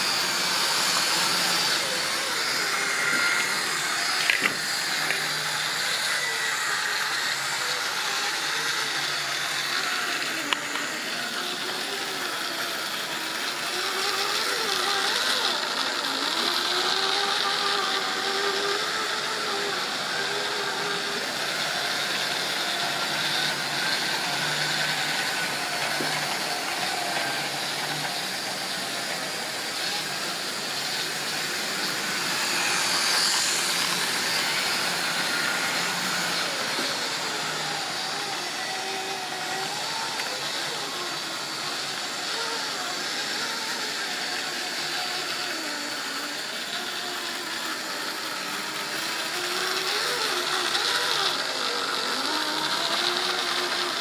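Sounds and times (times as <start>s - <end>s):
motor whine wavering: 0.0s - 54.0s.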